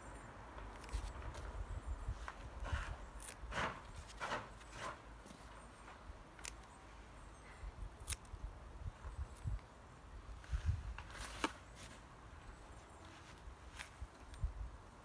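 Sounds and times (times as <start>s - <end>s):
scissors snipping leaves: 0.7s - 1.5s, 3.1s - 4.2s, 6.3s - 6.7s, 7.9s - 8.4s.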